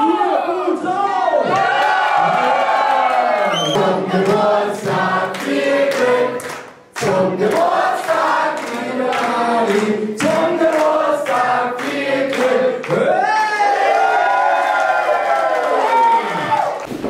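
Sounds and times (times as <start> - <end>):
crowd singing in chorus: 3.4 - 13.1
hand claps: 3.7 - 13.0.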